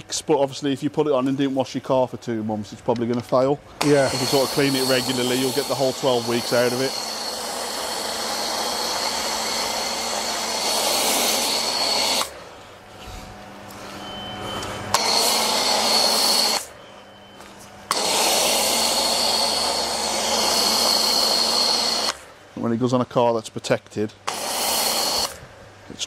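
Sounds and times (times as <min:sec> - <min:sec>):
pressure washer spraying: 0:03.8 - 0:12.6, 0:14.9 - 0:16.7, 0:17.8 - 0:22.3, 0:24.2 - 0:25.4.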